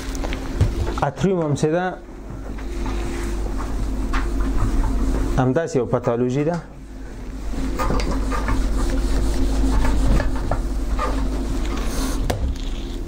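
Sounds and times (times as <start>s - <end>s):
eraser wiping whiteboard: 7.4s - 13.0s.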